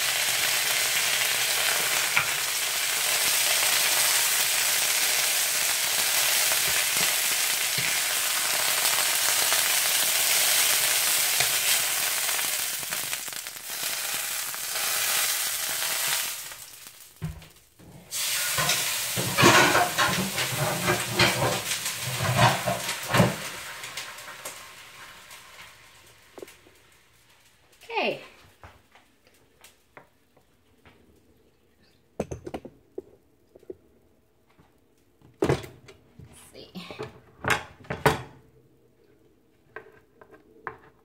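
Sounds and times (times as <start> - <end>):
chicken sizzling in a frying pan: 0.0 - 28.1.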